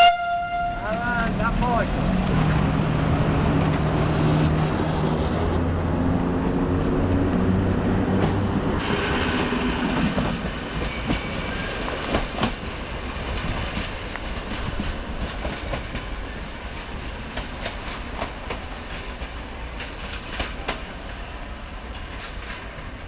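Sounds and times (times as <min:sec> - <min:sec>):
train wheels clacking on rails: 0:07.3 - 0:23.0.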